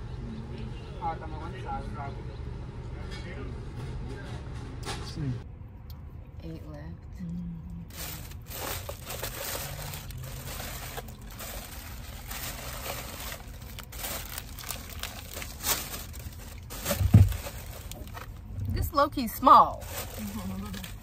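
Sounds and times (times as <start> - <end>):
paper bag crinkling and rustling: 7.9 - 18.4, 19.4 - 21.0.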